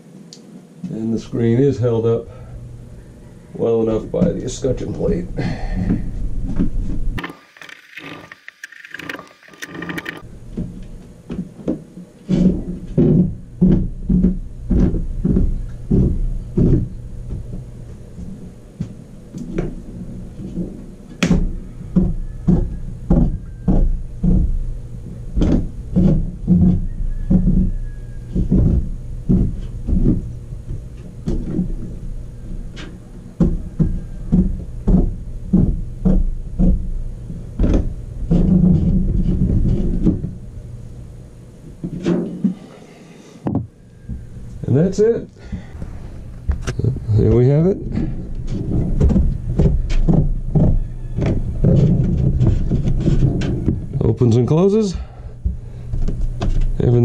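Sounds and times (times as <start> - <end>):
roof vent crank knocking: 20.5 - 40.4, 43.4 - 54.0.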